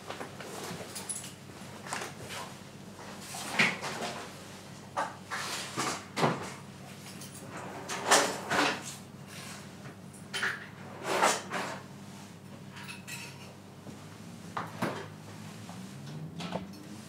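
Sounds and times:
dishes clattering: 0:12.7 - 0:13.6.

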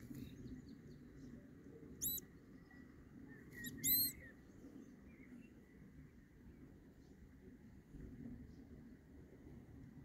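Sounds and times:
vole squeaking: 0:03.6 - 0:04.2.

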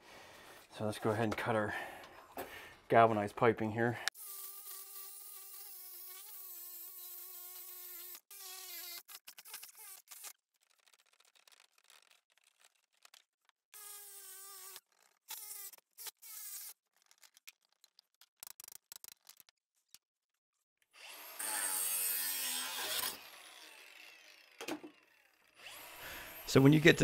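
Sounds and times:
angle grinder cutting steel pipe: 0:21.0 - 0:27.0.

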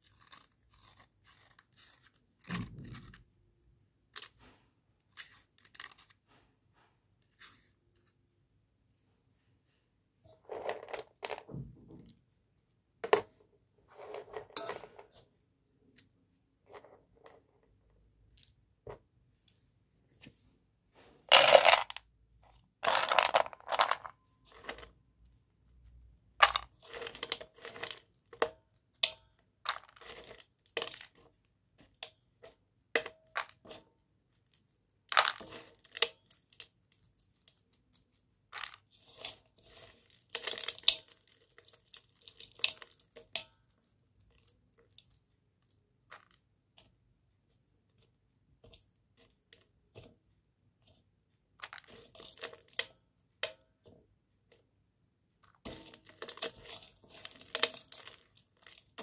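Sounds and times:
slate crunching against metal bowl: 0:26.4 - 0:28.0, 0:55.6 - 0:59.0.

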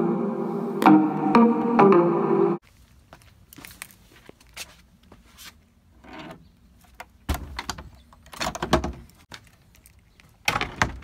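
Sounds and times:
wooden gate rattling: 0:07.3 - 0:09.1, 0:10.4 - 0:11.0.

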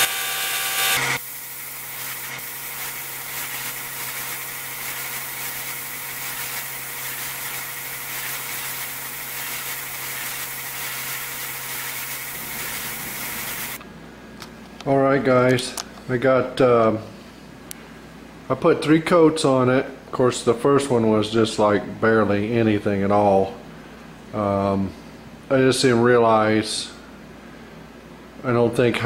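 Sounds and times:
machine hum: 0:00.0 - 0:16.1
spray gun hissing: 0:00.8 - 0:13.8.

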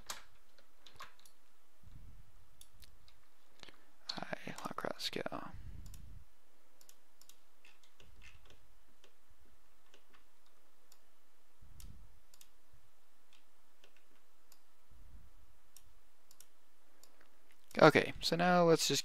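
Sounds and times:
computer mouse clicking: 0:00.0 - 0:01.4, 0:05.8 - 0:06.1, 0:06.8 - 0:09.2, 0:11.8 - 0:12.6, 0:13.3 - 0:14.7, 0:15.7 - 0:17.8
faint steady hiss: 0:00.0 - 0:19.0.

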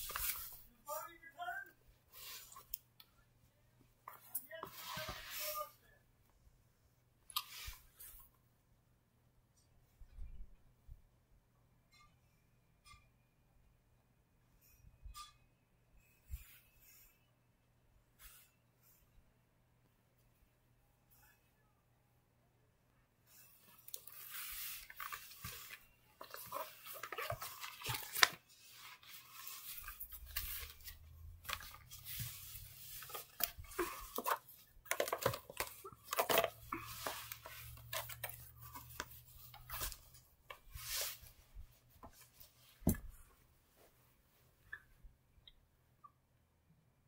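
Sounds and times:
plush toys rustling on carpet: 0:04.2 - 0:05.8, 0:24.1 - 0:44.5.

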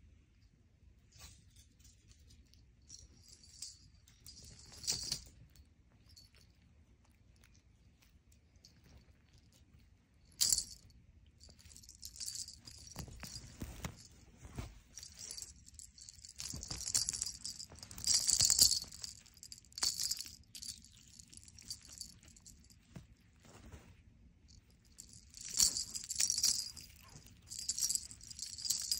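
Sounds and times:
cat toy jingling: 0:03.0 - 0:05.4, 0:10.3 - 0:23.0, 0:24.9 - 0:28.9.

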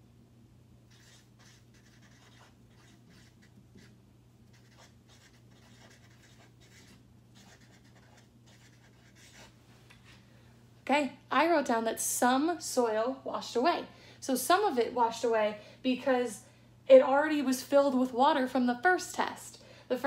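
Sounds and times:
felt-tip marker writing on paper: 0:00.9 - 0:03.9, 0:04.5 - 0:09.5.

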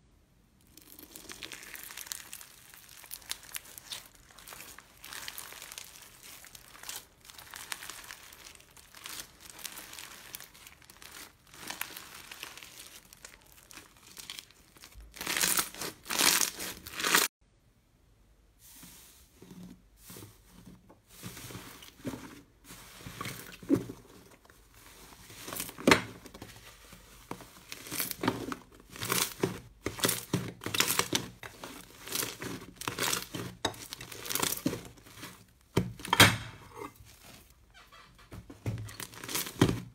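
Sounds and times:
slime crackling when stretched: 0:00.6 - 0:17.3.

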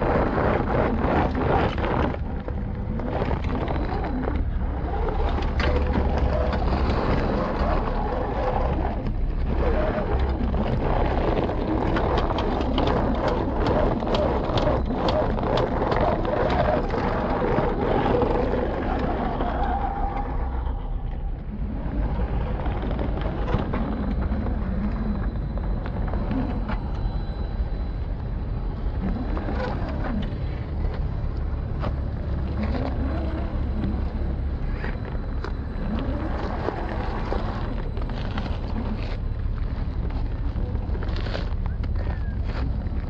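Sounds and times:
tyres crunching on gravel: 0:30.9 - 0:43.0.

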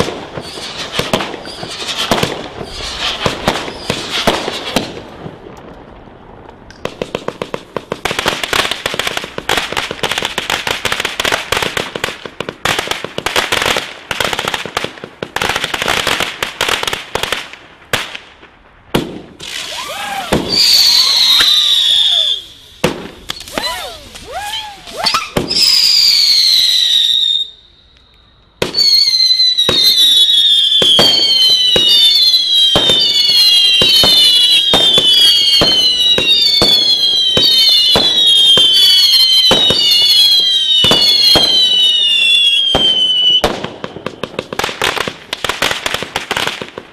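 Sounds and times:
firework whistles: 0:00.0 - 0:05.0, 0:19.4 - 0:44.2
firework bangs: 0:00.0 - 0:27.6, 0:28.5 - 0:46.9
fireworks crackling: 0:00.0 - 0:46.9.

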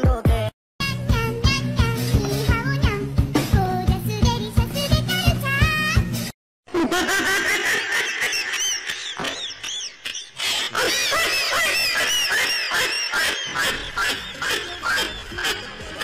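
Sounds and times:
music with beat and singing: 0:00.0 - 0:06.3
high-pitched squeaky laughter: 0:08.2 - 0:16.0.

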